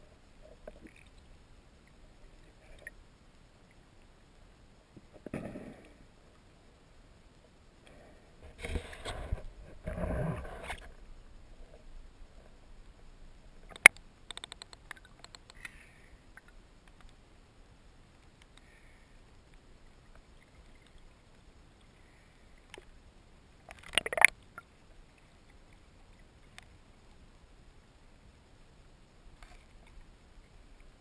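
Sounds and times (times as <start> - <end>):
faint underwater hiss: 0.0 - 31.0
underwater clicks: 13.7 - 15.8, 23.7 - 24.4.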